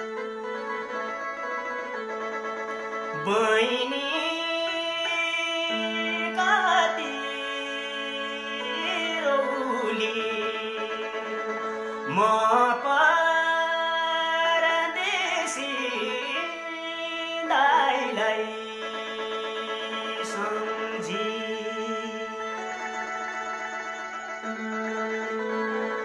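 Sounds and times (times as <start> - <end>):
person singing folk tune: 0.0 - 26.0
instrumental drone: 18.2 - 26.0.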